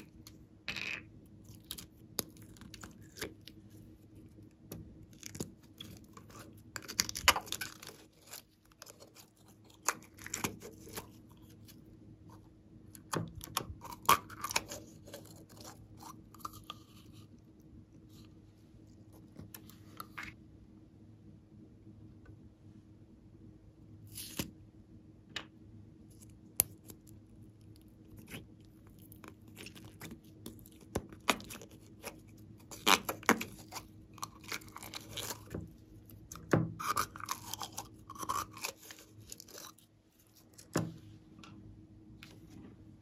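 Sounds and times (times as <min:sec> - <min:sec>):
slime squishing: 0:01.3 - 0:18.3, 0:26.1 - 0:41.0.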